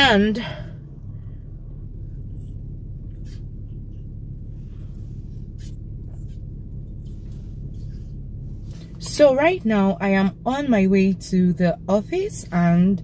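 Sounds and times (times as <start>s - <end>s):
low hum in a car cabin: 0.0s - 13.0s
sipping through a straw: 3.1s - 3.5s.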